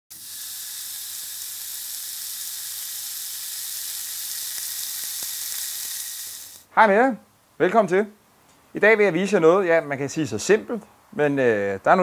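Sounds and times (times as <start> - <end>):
sausage sizzling on a grill: 0.1 - 6.7.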